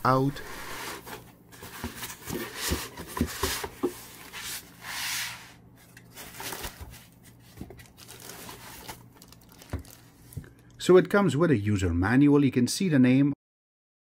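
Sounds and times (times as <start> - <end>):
plastic bag crinkling: 6.1 - 10.6.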